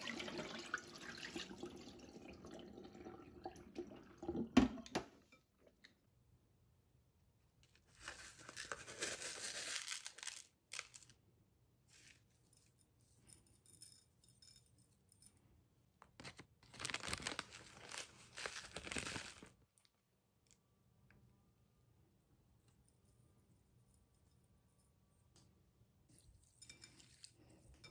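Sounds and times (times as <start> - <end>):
food packaging crinkling: 7.7 - 11.2, 16.1 - 20.6
salt being scooped: 7.9 - 11.1.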